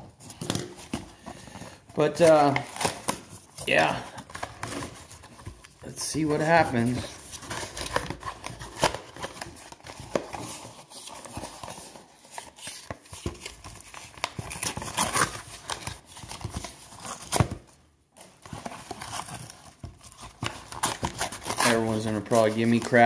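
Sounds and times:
foil wrappers crinkling: 18.3 - 23.0
paper tearing: 20.1 - 23.0.

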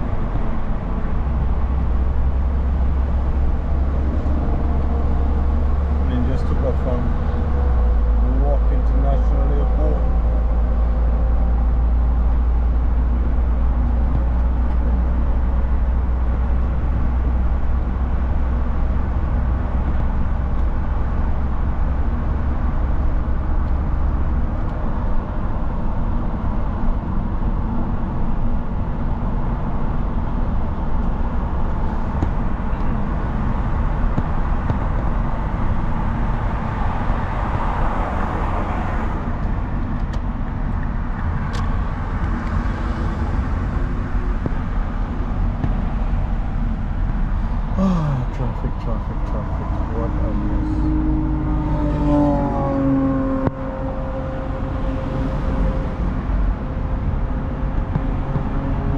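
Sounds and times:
car engine rumble: 0.0 - 58.9
surrounding traffic: 0.0 - 58.9
tyre road noise: 0.0 - 58.9.

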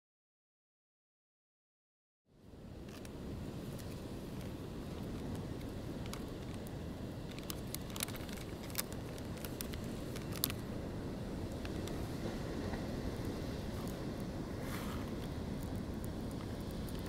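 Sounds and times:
wind on microphone: 2.5 - 17.0
ocean surf breaking: 2.6 - 17.0
small clicks and crackles: 2.8 - 10.7, 11.4 - 17.0.

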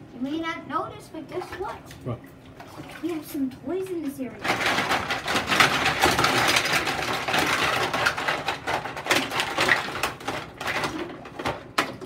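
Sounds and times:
plastic toys clattering: 4.4 - 12.0.

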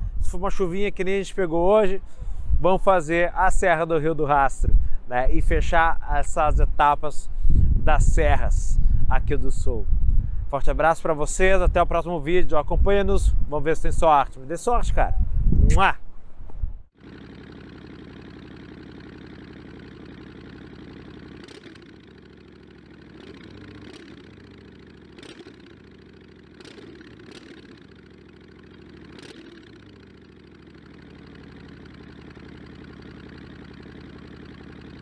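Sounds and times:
motorcycle engine idling: 16.9 - 35.0.

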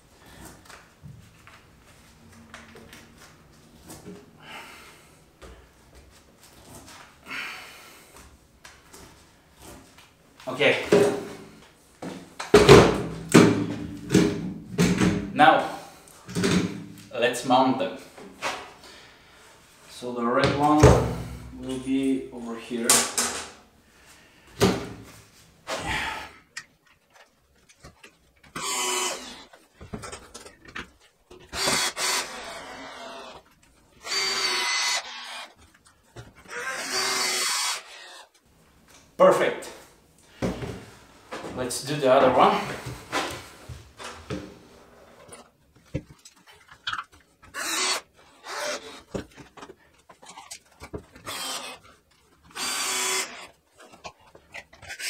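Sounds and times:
drill motor whining: 28.6 - 29.6, 31.4 - 33.4, 34.0 - 35.6, 36.4 - 38.3, 47.5 - 49.2, 51.2 - 51.8, 52.5 - 53.5.

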